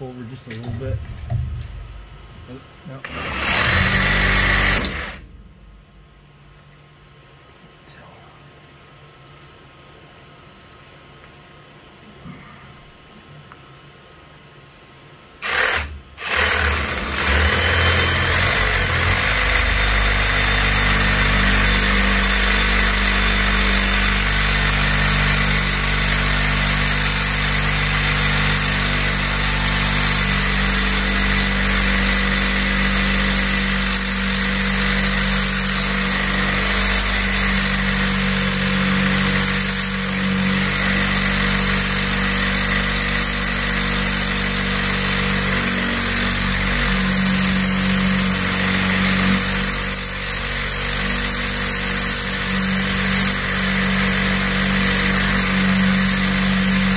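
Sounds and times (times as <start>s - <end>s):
band saw cutting metal pipe: 3.0s - 5.2s, 15.4s - 56.9s.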